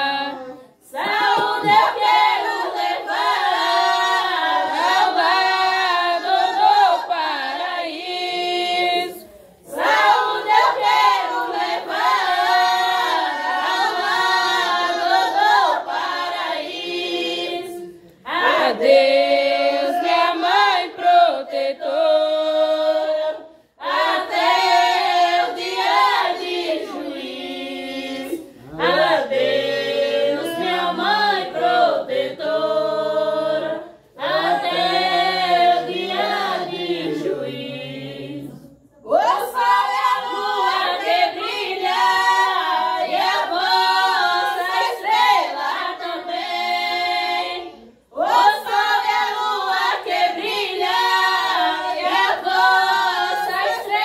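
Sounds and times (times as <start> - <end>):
women and children singing a hymn: 0.0 - 54.0.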